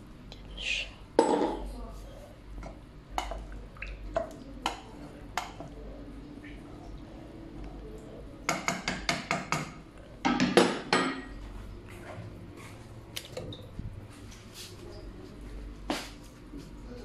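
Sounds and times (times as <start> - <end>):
cooking pot and utensils knocking: 2.6 - 3.4, 4.1 - 5.7, 8.5 - 11.4.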